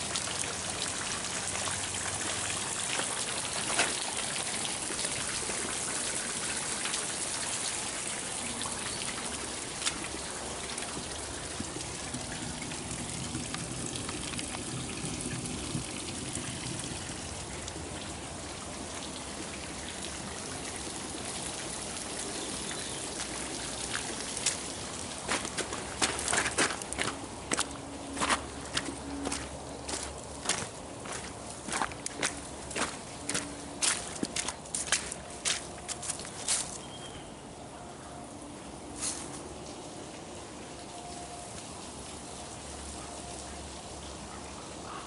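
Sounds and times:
water trickling over rock: 0:00.0 - 0:37.1, 0:38.9 - 0:44.8
footsteps on dry ground: 0:25.2 - 0:36.9.

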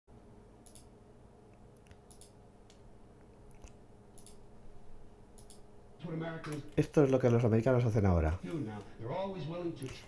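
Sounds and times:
low electrical hum: 0:00.1 - 0:10.0
computer mouse clicks: 0:00.6 - 0:00.9, 0:01.5 - 0:02.8, 0:03.5 - 0:04.4, 0:05.4 - 0:05.6.

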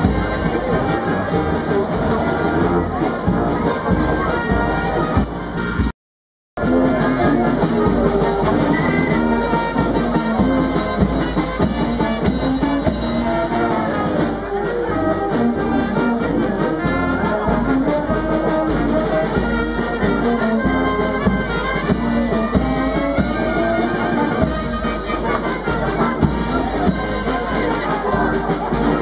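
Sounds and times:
brass band playing: 0:00.0 - 0:05.9, 0:06.6 - 0:29.0
bass drum and snare beat: 0:06.6 - 0:29.0.

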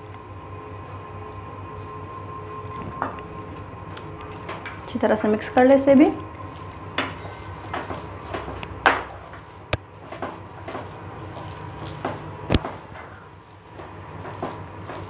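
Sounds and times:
spatula scraping a pan: 0:06.4 - 0:13.4.

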